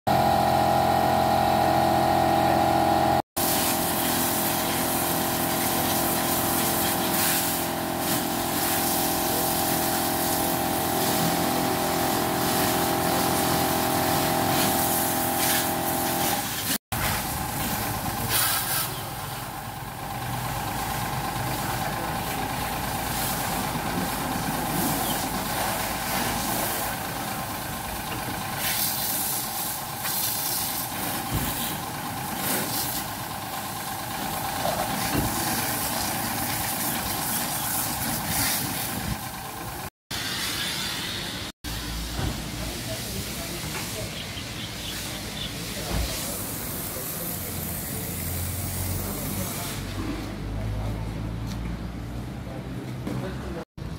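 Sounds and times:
car wash motor hum: 0.1 - 53.9
water jet spraying: 3.4 - 19.0.

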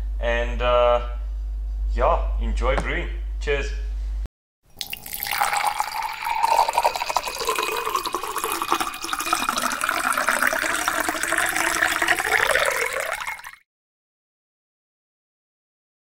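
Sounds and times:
liquid splashing and pouring: 4.7 - 13.6.

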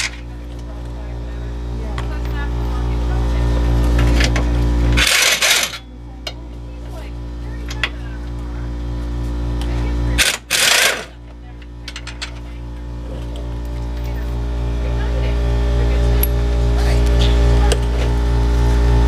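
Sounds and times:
machine hum: 0.0 - 19.0.

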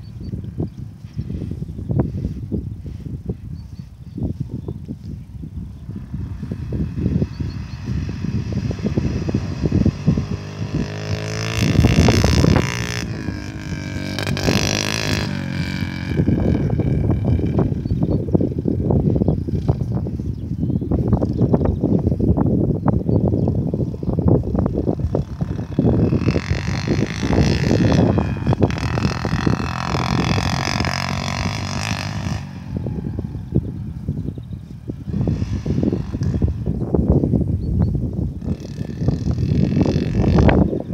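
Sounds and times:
wind rumble on microphone: 0.0 - 40.9
dirt bike engine revving: 5.9 - 20.0, 24.1 - 37.3, 38.2 - 40.9.

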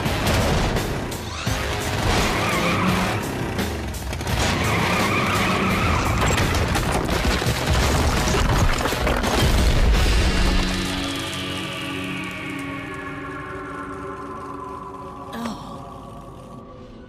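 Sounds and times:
vehicle engine running hard: 0.0 - 8.3
action music: 0.0 - 15.3
wheels grinding against rock: 5.5 - 11.6
high screeching whine: 10.8 - 17.0.

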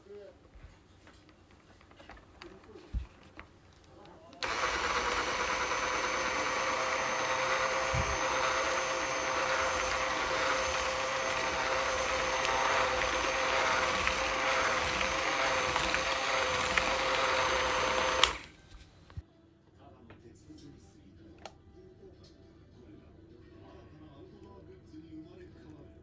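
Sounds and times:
electric motor humming and whining: 4.4 - 19.2.

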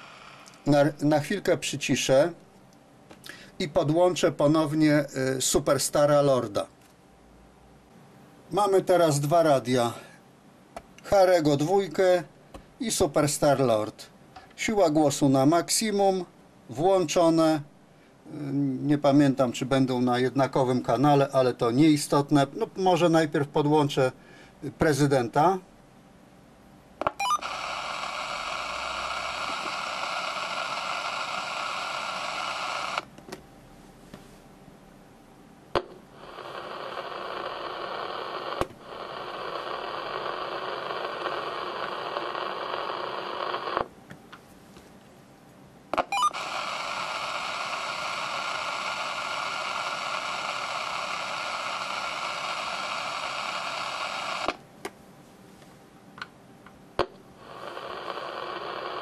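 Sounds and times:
radio static hiss: 0.0 - 2.4, 3.2 - 6.8, 8.5 - 10.2, 11.0 - 25.7, 27.0 - 33.1, 35.7 - 44.0, 45.9 - 54.6, 57.0 - 59.0.

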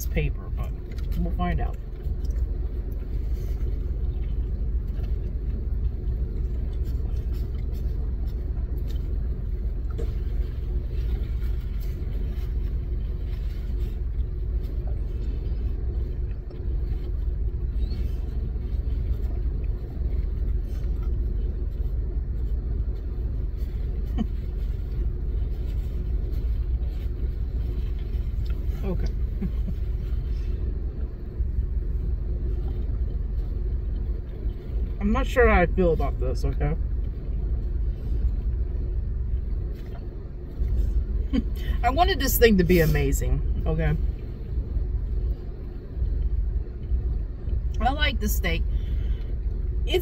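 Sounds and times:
car engine idling: 0.0 - 50.0.

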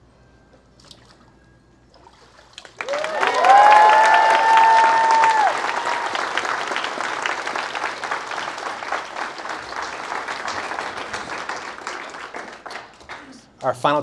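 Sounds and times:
congregation applauding: 2.7 - 13.7.

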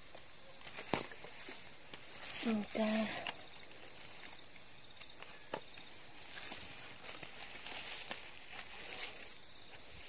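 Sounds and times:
high-pitched insect chorus: 0.0 - 10.0
twigs snapping: 0.1 - 10.0
footsteps in dry leaves: 5.2 - 10.0.

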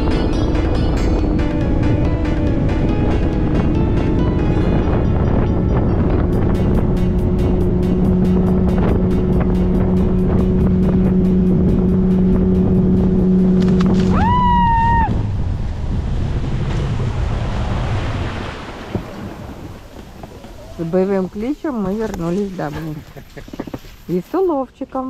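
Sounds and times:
outboard motor running: 0.0 - 23.9
reeds brushing along hull: 7.9 - 14.5, 15.4 - 24.8.

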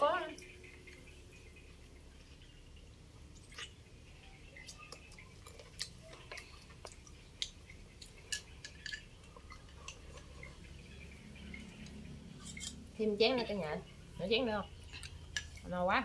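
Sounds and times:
chewing porridge: 3.3 - 13.0, 14.6 - 15.6.

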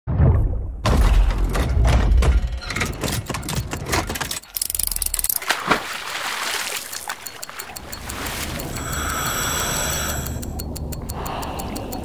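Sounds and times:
quick irregular clicks: 2.8 - 5.8, 6.6 - 12.0
high hiss: 8.8 - 10.4.

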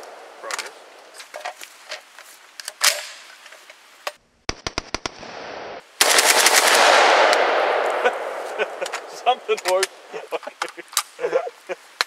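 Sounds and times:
shotgun shots: 4.5 - 10.0.

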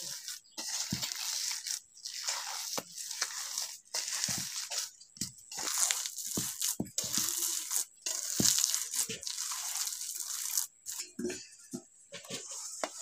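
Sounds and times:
hand kneading wet mixture: 0.0 - 13.0.

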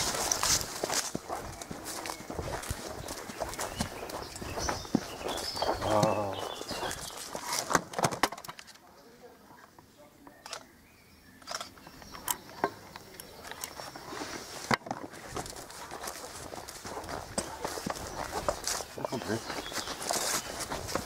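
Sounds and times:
footsteps on grass: 0.0 - 7.8, 13.7 - 21.0.

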